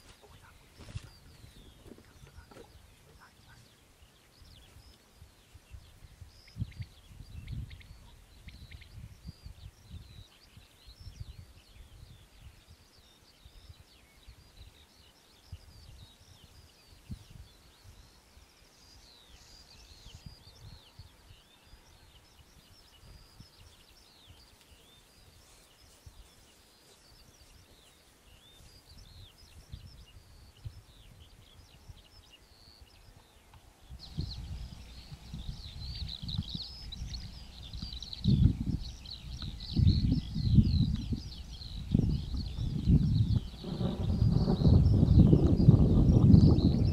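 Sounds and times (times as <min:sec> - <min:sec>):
wind buffeting microphone: 0:00.0 - 0:18.2, 0:28.4 - 0:46.9
small birds chirping: 0:00.0 - 0:46.9.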